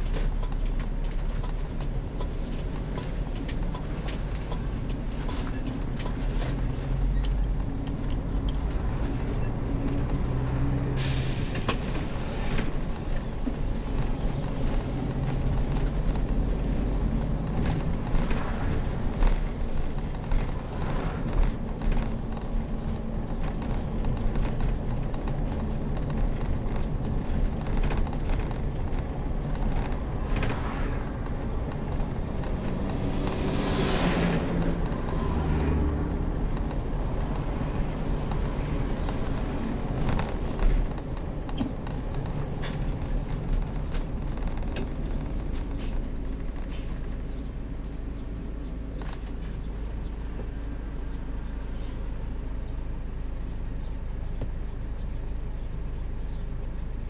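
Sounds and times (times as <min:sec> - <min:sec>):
motorhome engine and road rumble: 0:00.0 - 0:57.0.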